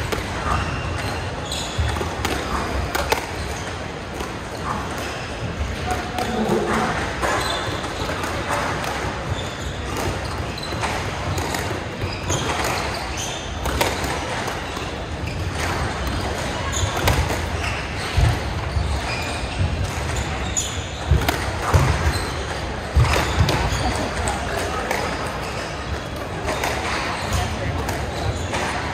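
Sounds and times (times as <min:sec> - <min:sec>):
shoes squeaking: 0:00.0 - 0:28.9
squash ball struck by rackets: 0:01.8 - 0:05.1, 0:13.6 - 0:18.5, 0:21.0 - 0:23.9.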